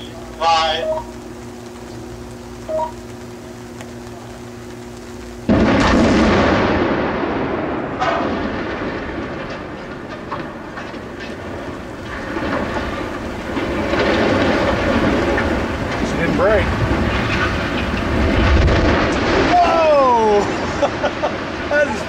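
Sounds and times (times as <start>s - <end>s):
rumble of chimney toppling: 0.0s - 22.0s
sharp explosive report: 4.4s - 21.7s
explosive blast: 5.4s - 21.7s.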